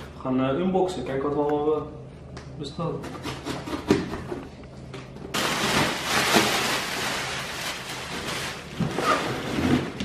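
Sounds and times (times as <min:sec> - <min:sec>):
plastic packing crinkling: 0:05.3 - 0:10.0.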